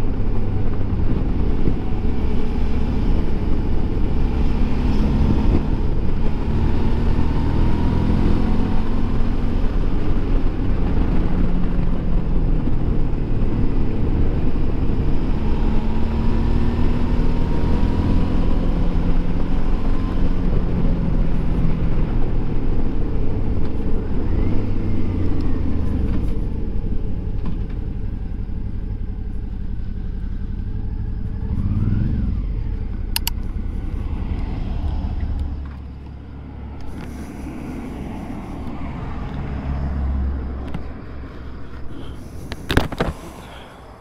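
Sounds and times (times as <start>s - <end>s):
sharp click: 33.1s - 33.5s.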